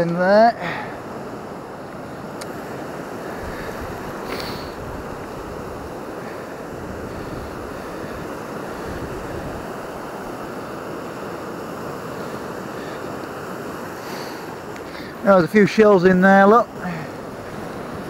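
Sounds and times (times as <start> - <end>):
waves breaking on pebble shore: 0.0 - 18.0.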